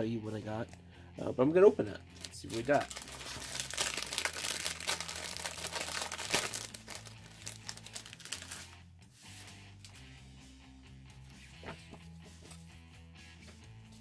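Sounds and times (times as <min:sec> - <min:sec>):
envelope tearing: 0:02.2 - 0:08.8
paper crinkling and rustling: 0:02.2 - 0:09.4.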